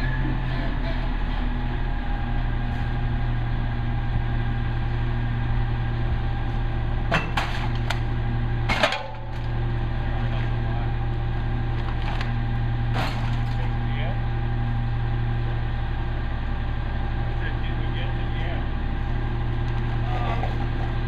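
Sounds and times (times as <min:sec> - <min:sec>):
diesel truck engine idling: 0:00.0 - 0:21.0.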